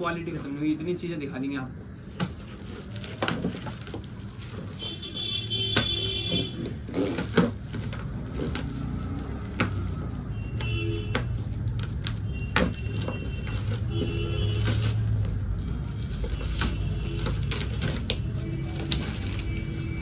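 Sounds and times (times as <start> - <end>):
plastic wrap tearing and crinkling: 2.0 - 5.6, 6.5 - 9.6, 11.3 - 20.0
packing straps snapping: 6.6 - 8.8.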